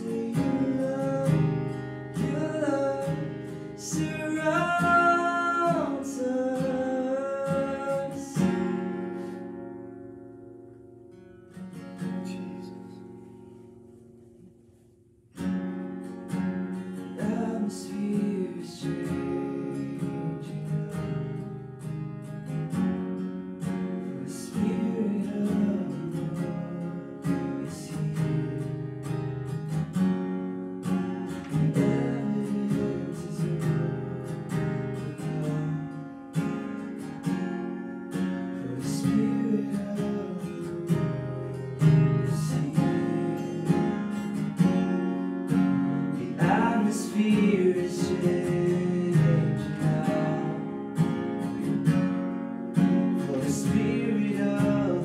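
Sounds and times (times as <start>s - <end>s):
man singing: 0.0s - 8.6s, 17.2s - 21.4s, 24.1s - 28.7s, 31.4s - 36.0s, 38.6s - 44.4s, 46.0s - 51.2s, 53.2s - 55.0s
acoustic guitar strumming: 0.0s - 55.0s.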